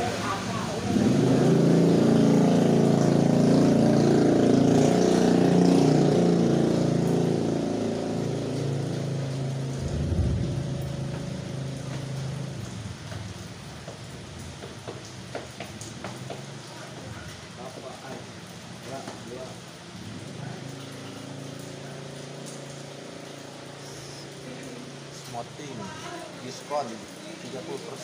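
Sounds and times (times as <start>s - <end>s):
heavy rain on a wet road: 0.0s - 28.0s
vehicle engine running: 0.8s - 16.6s.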